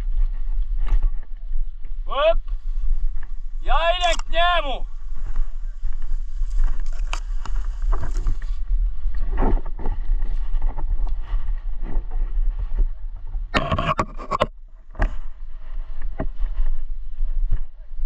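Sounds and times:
wind rumble on microphone: 0:00.0 - 0:18.0
scraping and rustling: 0:04.9 - 0:12.5.

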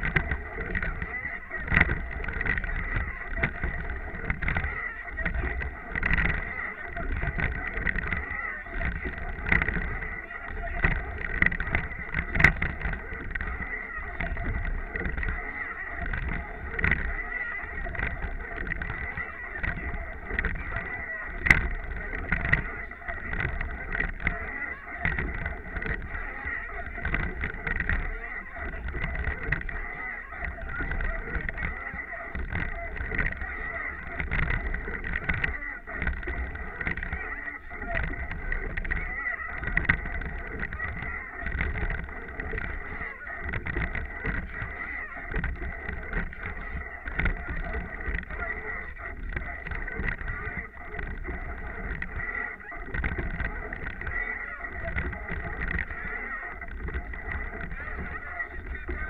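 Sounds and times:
water washing along hull: 0:00.0 - 0:15.4, 0:16.0 - 0:29.8, 0:30.4 - 0:37.2, 0:37.8 - 0:54.2
wind buffeting microphone: 0:00.0 - 0:29.8.

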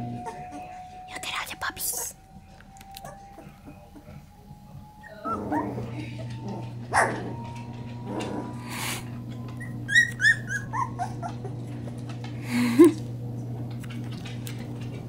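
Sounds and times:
puppies whimpering: 0:00.0 - 0:02.2, 0:02.8 - 0:13.0
puppy yelping: 0:05.0 - 0:09.0, 0:09.6 - 0:11.6.

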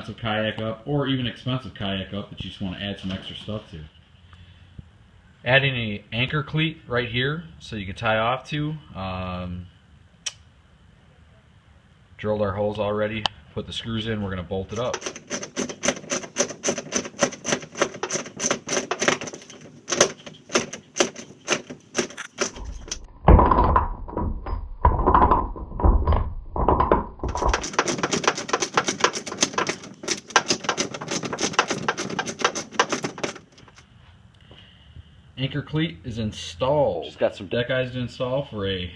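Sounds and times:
booming knocks on plastic hull: 0:14.9 - 0:33.5.

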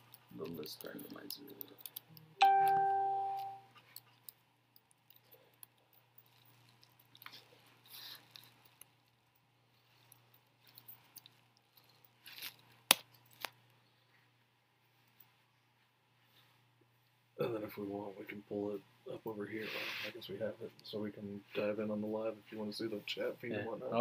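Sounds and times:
low steady hum: 0:00.0 - 0:24.0
electronic chime: 0:02.4 - 0:03.7.

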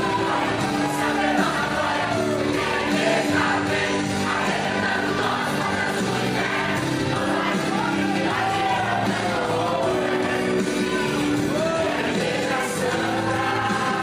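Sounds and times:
youth choir singing gospel: 0:00.0 - 0:14.0.

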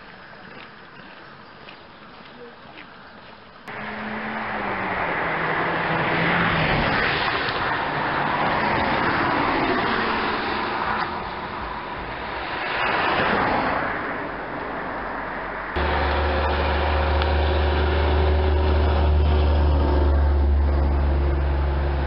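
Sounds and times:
cars passing on highway: 0:03.7 - 0:22.0.

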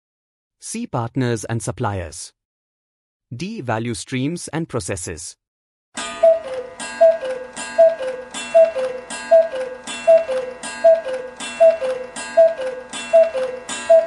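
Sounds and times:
two-note clock ticking: 0:06.0 - 0:14.0.

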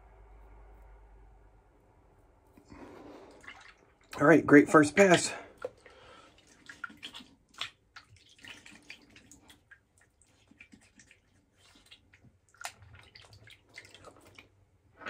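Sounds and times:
water splashing and dripping: 0:03.2 - 0:04.4, 0:05.0 - 0:14.6.

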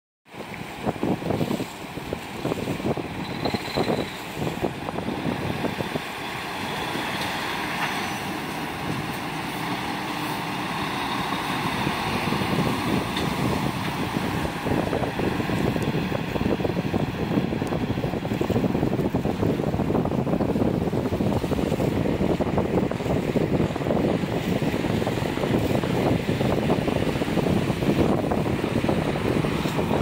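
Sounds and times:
wind gusting on microphone: 0:00.3 - 0:30.0
diesel truck driving past: 0:04.2 - 0:18.8.

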